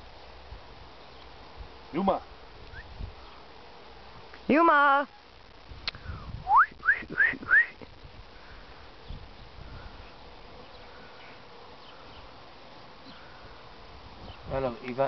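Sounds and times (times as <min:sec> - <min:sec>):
insects buzzing faintly: 0:00.0 - 0:15.0
person whistling rising whistles: 0:06.4 - 0:07.8.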